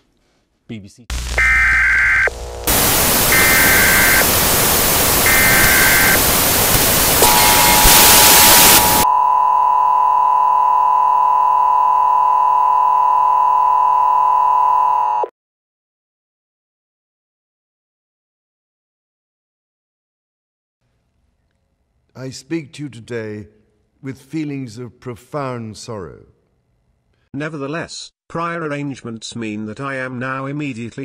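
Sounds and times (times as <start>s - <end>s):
television static hiss: 1.1s - 9.0s
electronic test tone: 1.1s - 15.3s
short electronic beeps: 7.2s - 9.3s.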